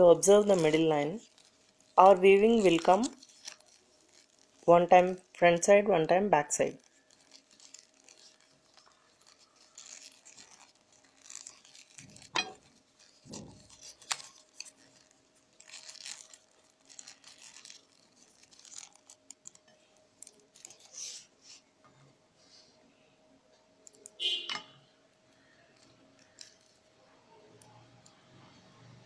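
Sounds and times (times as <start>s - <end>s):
paper tubes rustling and scraping: 0.0s - 5.8s, 6.5s - 21.7s, 25.4s - 26.9s.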